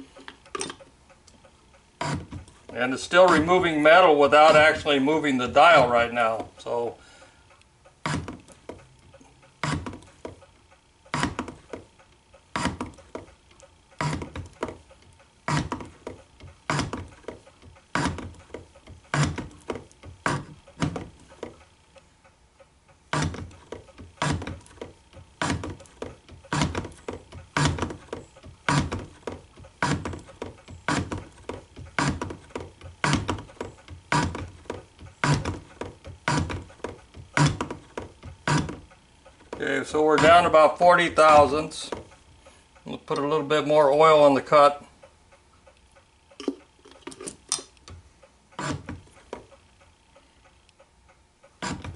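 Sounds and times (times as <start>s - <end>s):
hand shaper clicking strokes: 11.1s - 21.6s, 23.1s - 40.6s.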